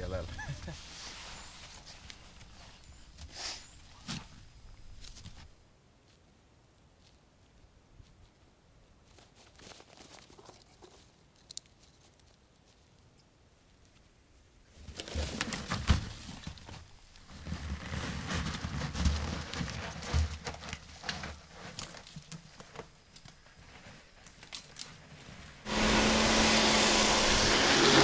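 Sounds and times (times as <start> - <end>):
loud steady rushing noise: 25.7 - 28.0.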